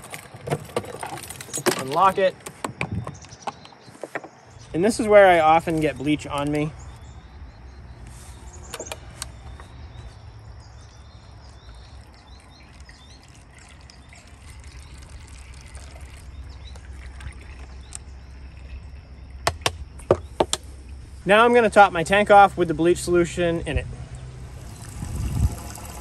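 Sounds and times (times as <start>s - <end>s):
water trickling pour: 11.2s - 19.4s, 24.4s - 26.0s.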